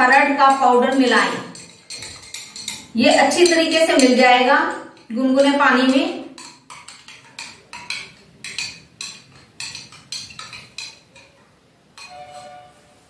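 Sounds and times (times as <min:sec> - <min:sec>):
spoon clinking against glass: 0:00.5 - 0:04.2, 0:12.0 - 0:12.9.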